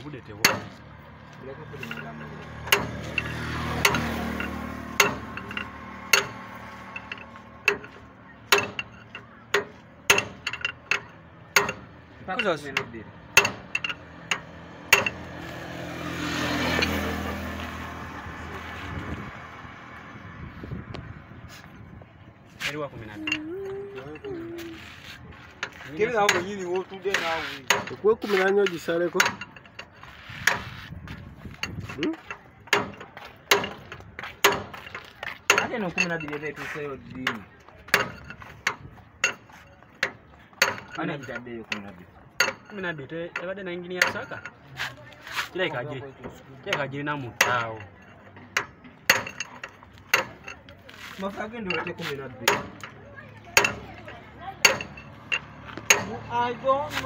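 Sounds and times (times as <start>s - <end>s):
hammer striking metal: 0.4s - 0.8s, 1.7s - 15.3s, 25.7s - 30.7s, 32.0s - 36.4s, 46.7s - 50.6s, 51.7s - 53.0s, 53.6s - 56.4s
metal rod clinking on wheel hub: 1.6s - 15.5s, 22.7s - 57.0s
man talking: 22.6s - 24.8s.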